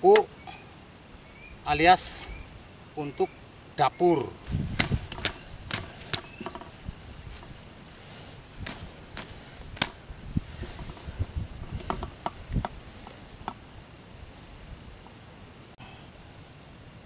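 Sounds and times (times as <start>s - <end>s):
hands packing damp earth: 4.5s - 13.6s
soft thumps and sharp clicks: 4.6s - 7.6s, 8.6s - 13.6s.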